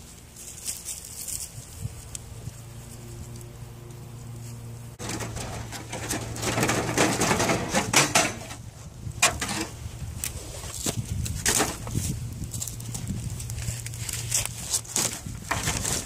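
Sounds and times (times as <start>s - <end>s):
metal grate scraping on metal: 5.0s - 8.6s, 9.2s - 9.8s
sharp metal knocks: 5.0s - 8.6s.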